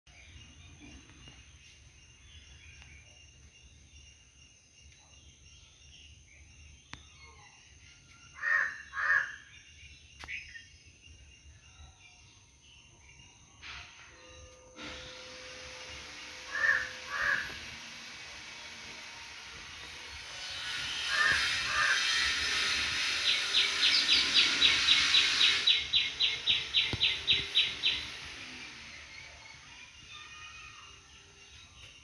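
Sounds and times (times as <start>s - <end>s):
distant bird chirps: 0.1s - 32.0s
crow cawing: 8.4s - 9.4s, 16.5s - 17.6s, 21.1s - 22.1s.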